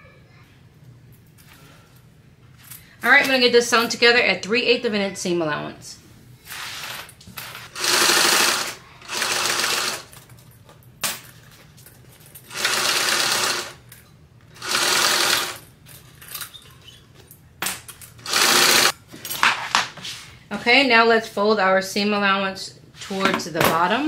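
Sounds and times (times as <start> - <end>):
sewing machine stitching: 7.7 - 10.1, 12.5 - 13.8, 14.6 - 15.6, 18.2 - 18.9.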